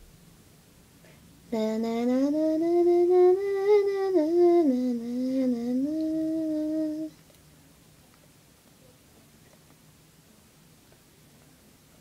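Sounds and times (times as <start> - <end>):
person humming a tune: 1.5 - 7.2.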